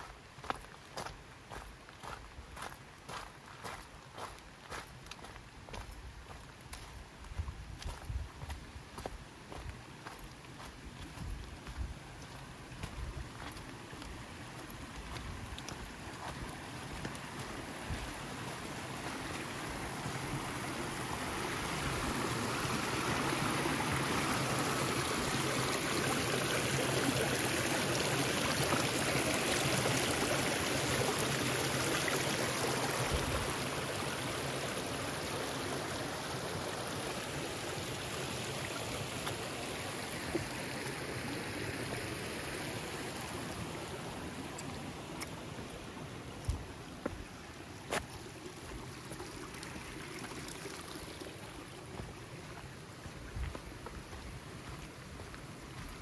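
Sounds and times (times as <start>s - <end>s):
creek trickling over stones: 0.0s - 56.0s.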